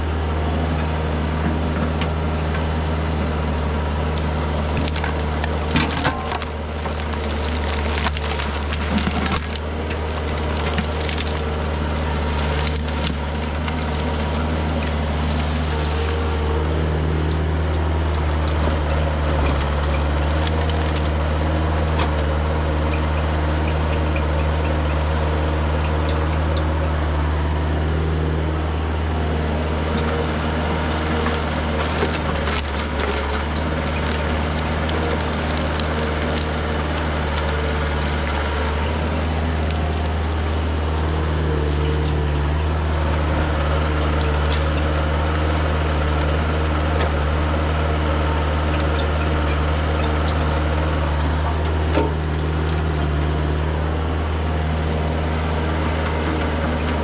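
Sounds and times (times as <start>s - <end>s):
excavator diesel engine running: 0.0s - 57.0s
branches cracking and snapping: 4.0s - 21.9s, 29.7s - 54.0s.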